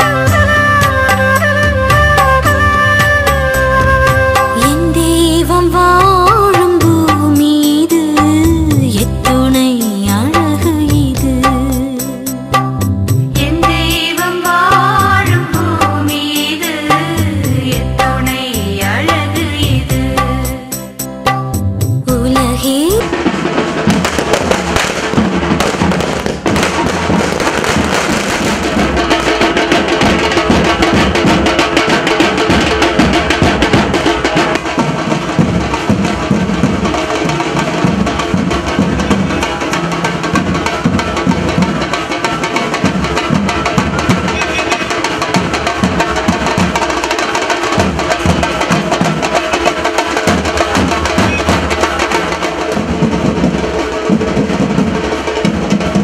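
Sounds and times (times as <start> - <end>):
drums beating: 0.0 - 56.0
firecrackers crackling: 22.8 - 56.0.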